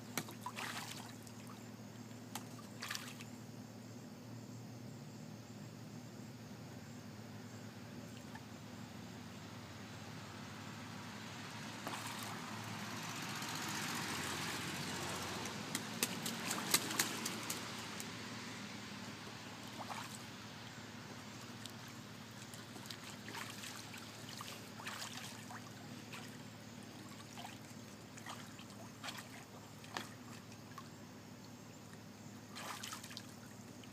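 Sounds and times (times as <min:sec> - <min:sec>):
goose splashing in water: 0:00.0 - 0:01.6, 0:02.3 - 0:03.2, 0:11.8 - 0:12.6, 0:13.3 - 0:18.1, 0:19.6 - 0:20.3, 0:21.4 - 0:30.9, 0:32.5 - 0:33.4.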